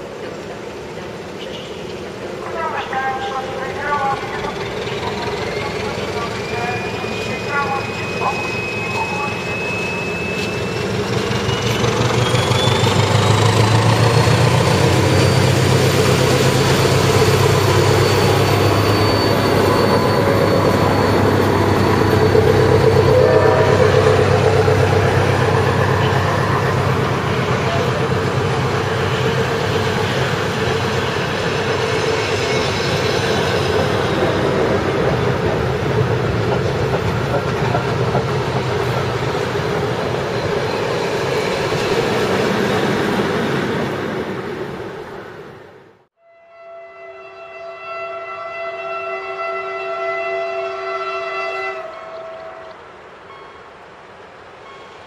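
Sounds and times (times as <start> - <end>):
diesel locomotive engine droning: 0.0 - 55.0
train wheels clattering on rails: 23.7 - 43.5.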